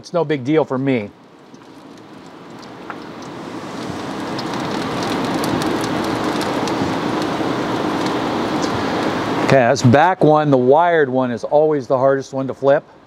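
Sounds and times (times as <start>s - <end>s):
chicken sizzling and crackling: 1.2s - 9.4s.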